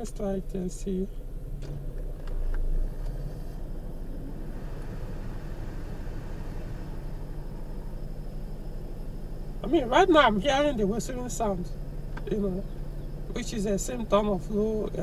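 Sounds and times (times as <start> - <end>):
car engine idling: 0.0 - 15.0
air-conditioning blower: 3.2 - 8.7.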